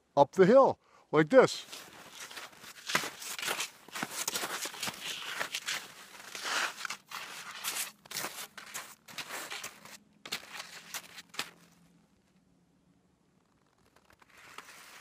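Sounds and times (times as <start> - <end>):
skis scraping on packed snow: 1.6 - 11.7, 14.2 - 15.0.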